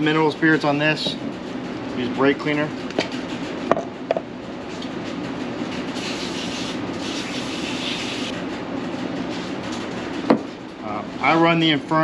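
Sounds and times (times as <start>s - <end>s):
aerosol spray hissing: 6.0s - 8.3s.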